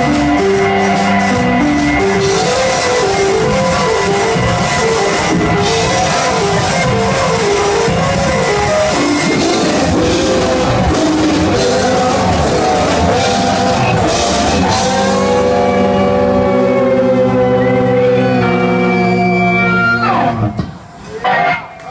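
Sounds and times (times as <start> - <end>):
drum kit: 0.0 - 19.1
bass guitar: 0.0 - 20.6
electric guitar: 0.0 - 21.9
keyboard: 0.0 - 21.9.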